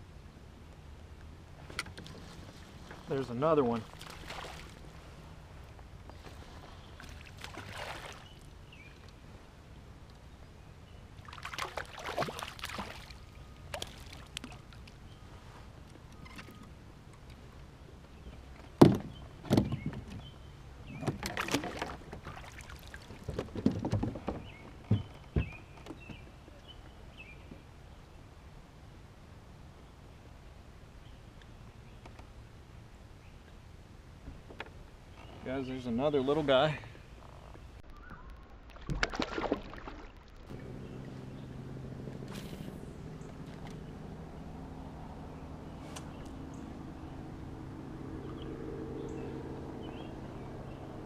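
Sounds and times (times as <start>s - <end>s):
water sloshing: 1.7s - 5.3s, 6.1s - 8.6s, 11.2s - 15.2s, 20.9s - 25.5s, 38.4s - 46.7s
fish splashing at the surface: 3.9s - 4.8s, 7.0s - 8.3s, 11.2s - 14.6s, 38.7s - 40.3s.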